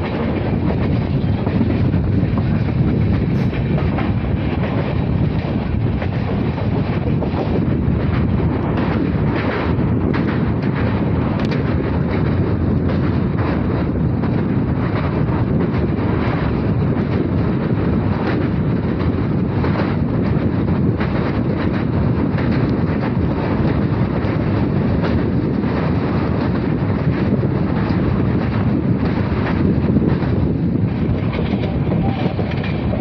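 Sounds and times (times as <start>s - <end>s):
rushing wind: 0.0s - 33.0s
train wheels rumbling on rails: 0.0s - 33.0s
faint track clicks: 10.1s - 11.7s.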